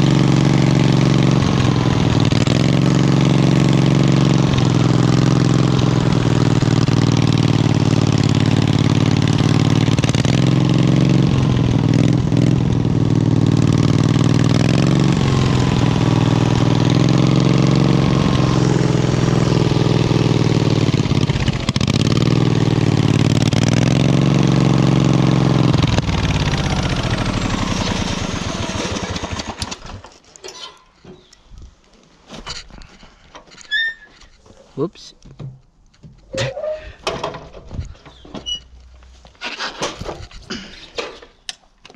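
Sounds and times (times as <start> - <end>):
lawn tractor engine revving: 0.0 - 30.2, 39.4 - 40.9.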